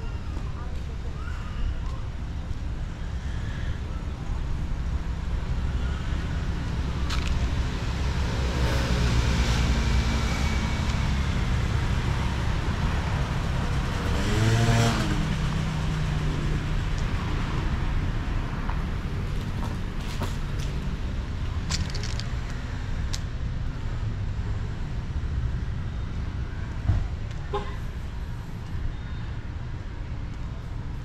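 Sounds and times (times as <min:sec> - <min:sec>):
low traffic rumble: 0:00.0 - 0:31.0
cars driving by: 0:05.0 - 0:28.9.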